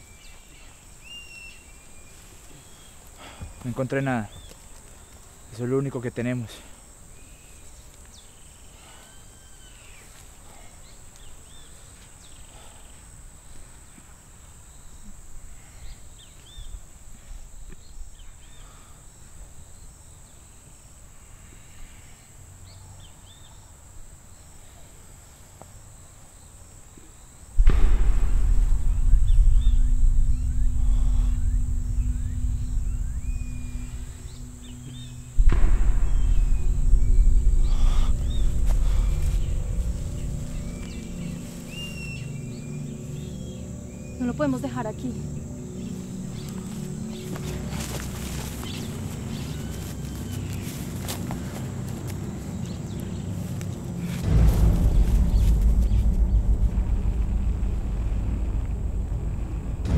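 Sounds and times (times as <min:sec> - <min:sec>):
high insect whine: 0:00.0 - 0:59.9
low droning rumble with hum: 0:27.6 - 0:59.9.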